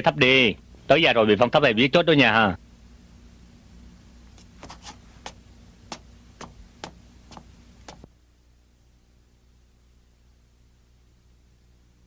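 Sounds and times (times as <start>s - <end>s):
faint low hum: 0.0s - 12.0s
hard footsteps: 4.4s - 8.1s.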